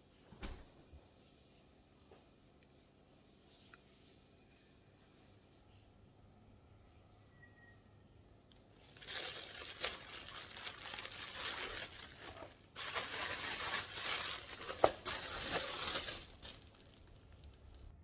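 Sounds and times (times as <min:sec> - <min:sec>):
plastic bag crinkling: 0:08.7 - 0:18.0.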